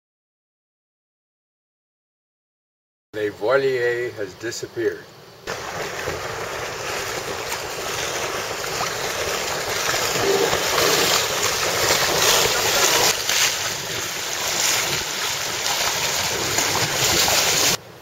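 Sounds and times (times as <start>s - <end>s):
waves and water sloshing: 5.4s - 17.8s.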